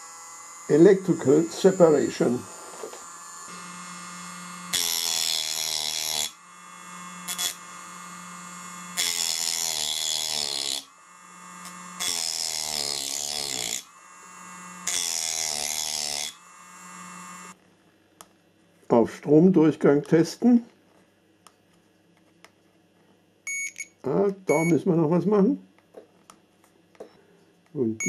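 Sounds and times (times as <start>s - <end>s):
rotary tool cutting metal: 0.0s - 17.6s.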